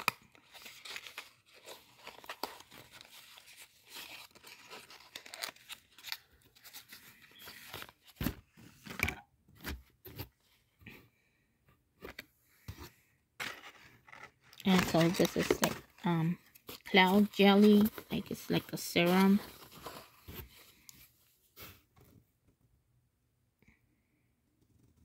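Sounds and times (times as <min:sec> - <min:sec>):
paper crinkling and rustling: 0:00.0 - 0:10.3, 0:13.4 - 0:21.1.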